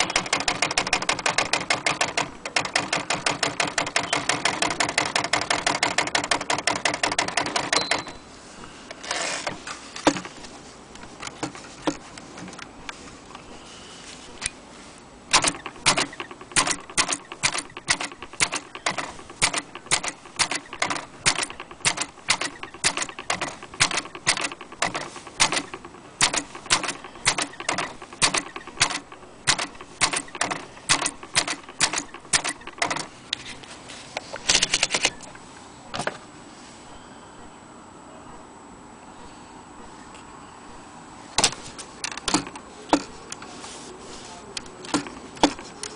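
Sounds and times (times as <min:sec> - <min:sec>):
typewriter key strikes: 0:00.0 - 0:08.2, 0:15.3 - 0:33.1.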